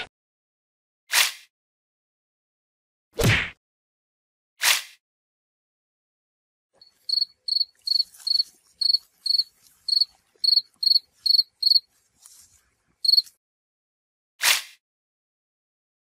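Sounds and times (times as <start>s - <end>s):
cricket chirping: 6.8s - 11.9s, 13.0s - 13.3s.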